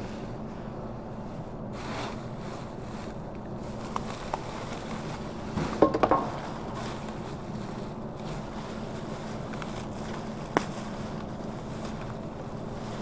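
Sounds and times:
steady low hum: 0.0 - 13.0
plastic bin bags rustling: 1.8 - 13.0
sharp knocks: 5.6 - 6.6.

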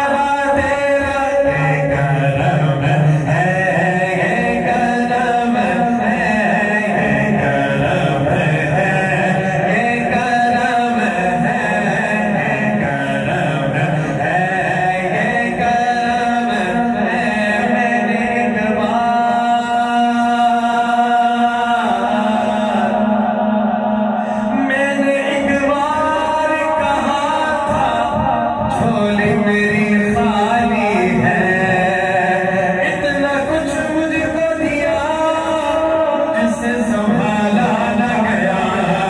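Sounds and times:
voices chanting together: 20.0 - 25.6.

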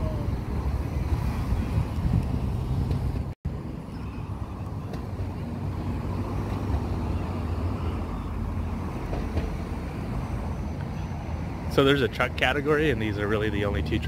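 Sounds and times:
wind on microphone: 0.0 - 10.5
vehicle traffic: 0.0 - 14.0.

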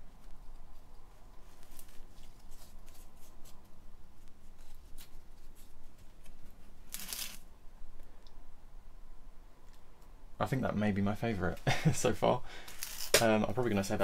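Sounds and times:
hands rustling potting compost: 0.0 - 7.5.

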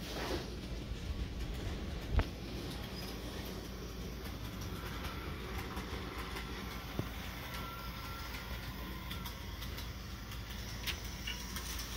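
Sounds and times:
model train running on track: 0.0 - 11.9.

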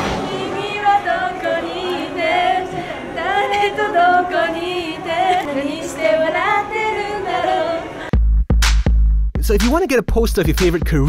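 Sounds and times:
women singing unaccompanied: 0.0 - 8.1.

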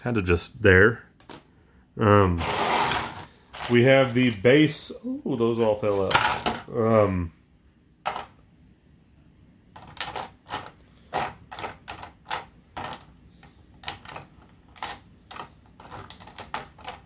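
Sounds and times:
hard plastic pieces clicking: 9.8 - 17.0.

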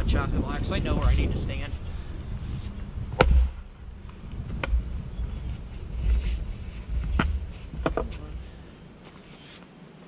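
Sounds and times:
axe chopping wood: 3.2 - 3.6.

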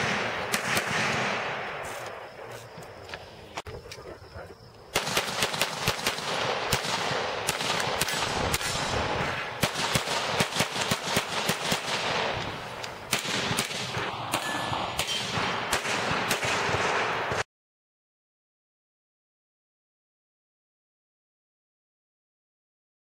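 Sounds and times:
pistol shots: 0.0 - 2.2, 4.9 - 17.4.

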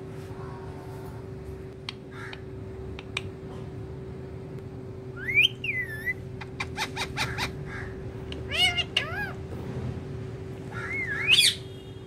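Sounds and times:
steady low hum: 0.0 - 12.0
parakeet whistle: 5.2 - 6.2, 10.8 - 11.7.

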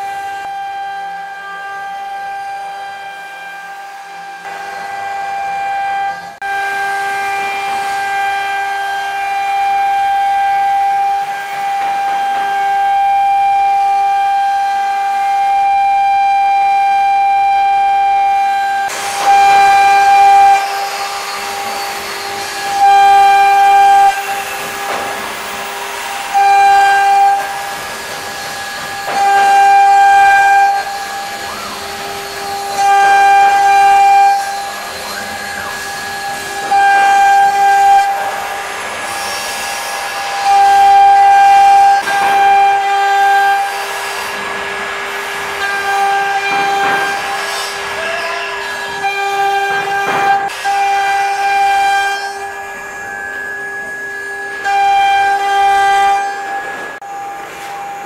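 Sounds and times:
router spindle whining: 0.0 - 58.0.

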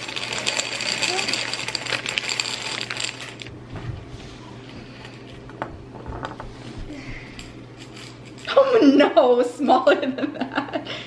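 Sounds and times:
candies rattling into glass jar: 0.0 - 3.5.

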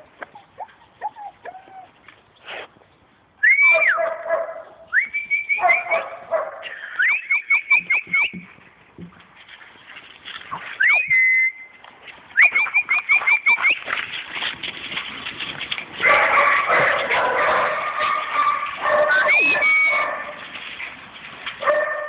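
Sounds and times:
puppies whimpering and yipping: 0.0 - 2.0, 17.9 - 20.1
person whistling: 4.9 - 5.8, 6.9 - 8.4, 10.8 - 11.7, 12.4 - 13.8.

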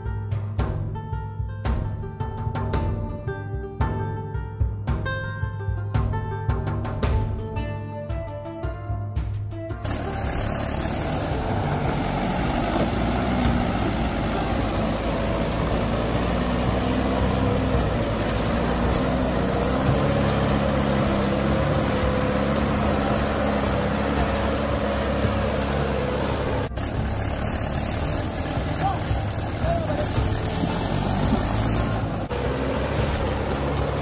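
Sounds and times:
tractor diesel engine running: 9.8 - 34.0.

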